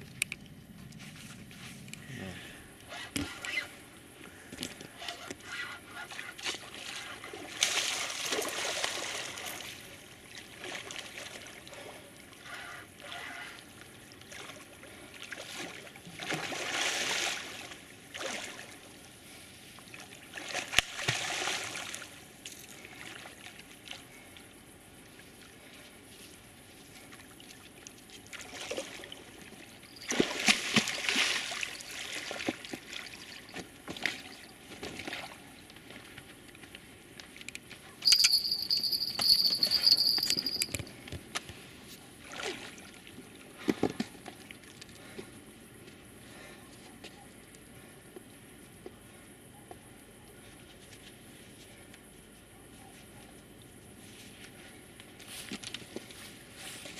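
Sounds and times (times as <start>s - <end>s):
water splashing and sloshing: 5.9s - 12.4s, 13.9s - 37.9s, 42.2s - 45.3s.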